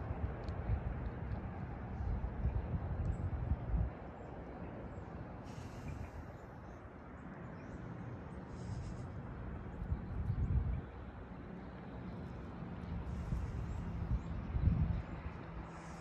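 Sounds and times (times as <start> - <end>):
low rumbling background noise: 0.0 - 16.0
faint hiss: 5.4 - 6.3.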